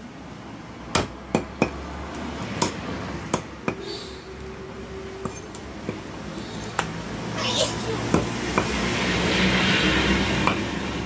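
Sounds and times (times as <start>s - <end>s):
cleaver chopping on wooden block: 0.9s - 1.8s, 2.5s - 3.8s, 8.1s - 8.8s.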